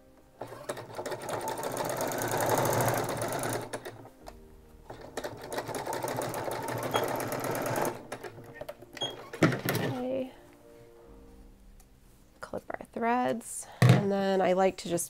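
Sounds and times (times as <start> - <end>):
electric sewing machine stitching: 0.4 - 4.0, 5.0 - 8.2.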